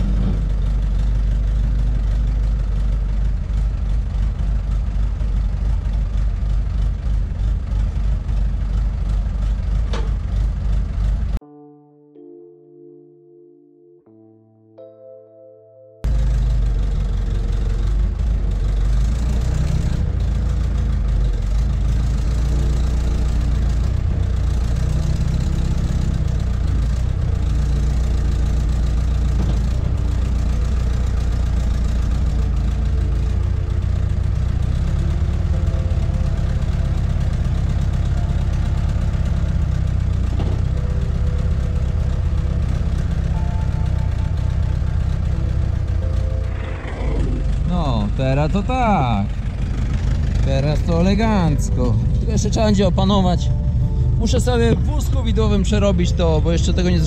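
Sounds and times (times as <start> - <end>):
diesel engine running: 0.0 - 11.4, 16.0 - 57.0
soft music: 11.4 - 16.4, 29.7 - 39.6, 40.4 - 49.2, 50.6 - 57.0.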